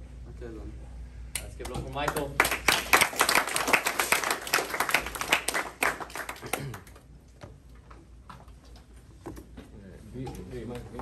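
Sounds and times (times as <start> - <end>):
small audience applauding: 1.6 - 7.1.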